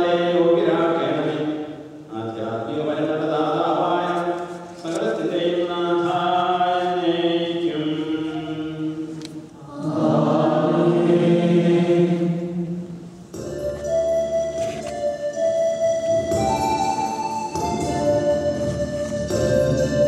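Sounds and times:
group chanting in held notes: 9.6 - 13.0.

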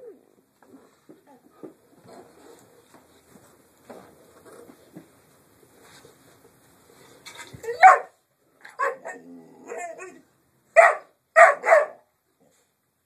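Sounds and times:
puppy barking: 7.8 - 8.2, 8.8 - 9.2, 10.8 - 12.1
puppy growling: 9.0 - 10.2.

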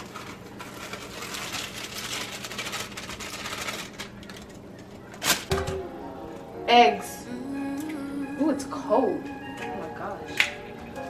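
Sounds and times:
plastic bag crinkling: 0.0 - 5.5.

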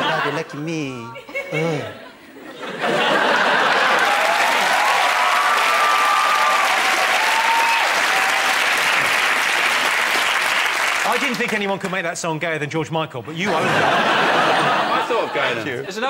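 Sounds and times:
audience applauding: 3.2 - 12.0
cheers: 3.7 - 9.6.

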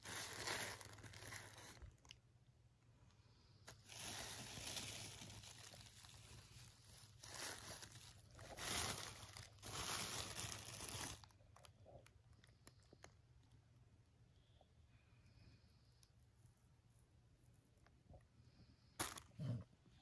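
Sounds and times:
plastic bag crinkling: 0.0 - 2.2, 3.7 - 13.2.

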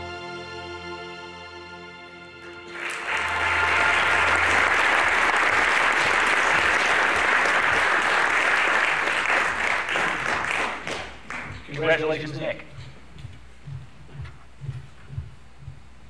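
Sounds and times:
background music: 0.0 - 7.2
audience applauding: 2.4 - 12.4.

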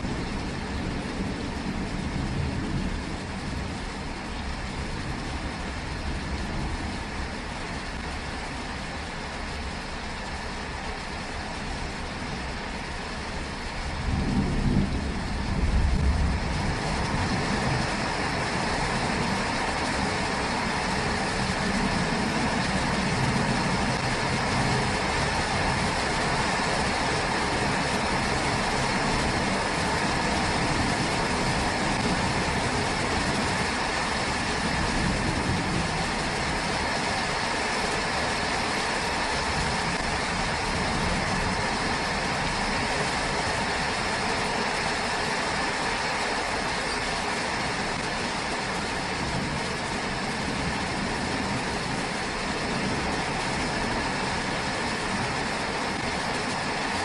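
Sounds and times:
low thunder rumble: 0.0 - 8.3, 11.0 - 44.8
pouring rain: 0.0 - 57.0.

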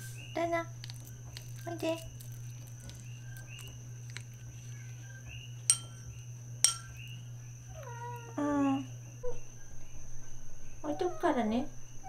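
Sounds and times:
steady low hum: 0.0 - 12.0
spoon clinking against ceramic bowl: 5.7 - 7.0.

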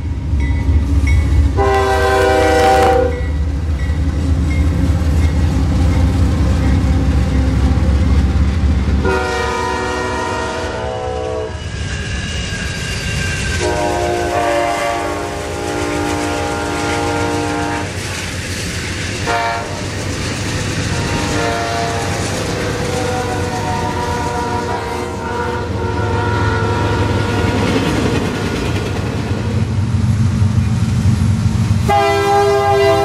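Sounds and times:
train rumbling: 0.0 - 33.0
locomotive air horn: 1.6 - 3.3, 9.0 - 11.6, 13.6 - 18.0, 19.2 - 19.8, 20.9 - 27.8, 31.8 - 33.0
wheels clickety-clack: 15.0 - 24.5, 27.2 - 31.9.

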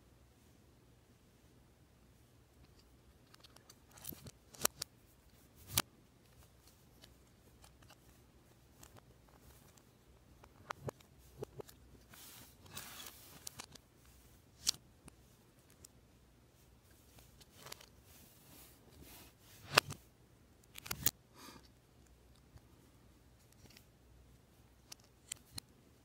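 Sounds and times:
plastic parts clicking together: 2.6 - 4.9, 14.6 - 14.8, 20.6 - 21.2, 24.8 - 25.7.

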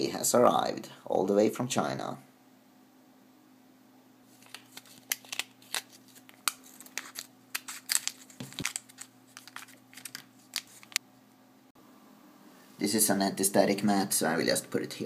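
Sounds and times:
plastic bag crinkling: 4.3 - 11.0.

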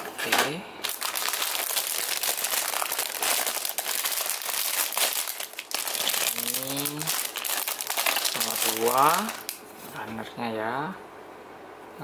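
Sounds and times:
plastic bags crinkling: 0.8 - 9.7.

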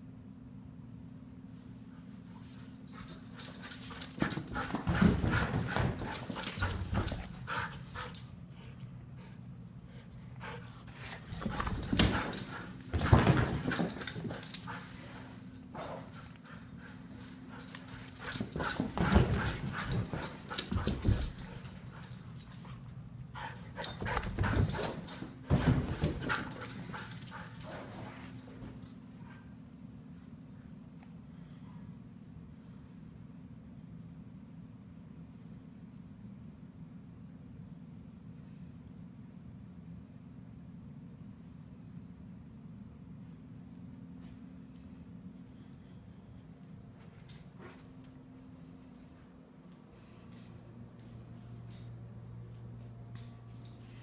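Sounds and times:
dog paws thumping on tile: 11.3 - 22.5.

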